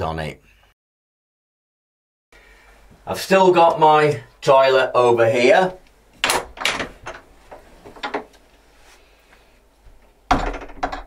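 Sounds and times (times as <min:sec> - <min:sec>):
door latch clicking and rattling: 0:06.2 - 0:07.2
door knock swinging open: 0:10.3 - 0:11.0.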